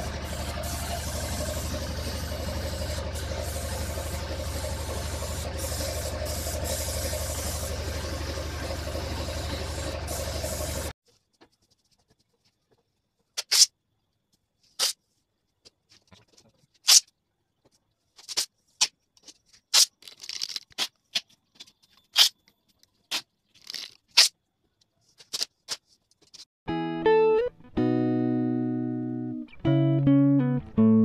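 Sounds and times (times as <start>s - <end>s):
masking tape ripping: 19.7s - 21.0s, 23.1s - 24.4s.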